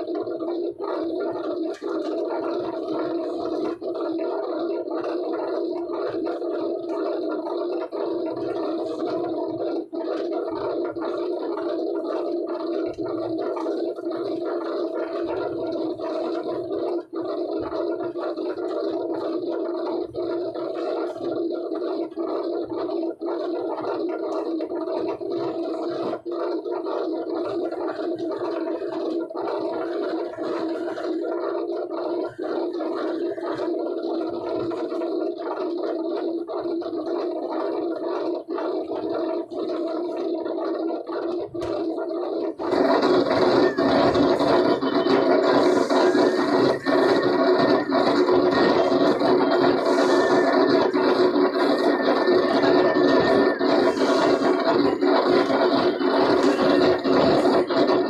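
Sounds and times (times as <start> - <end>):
machine droning: 42.6 - 58.0.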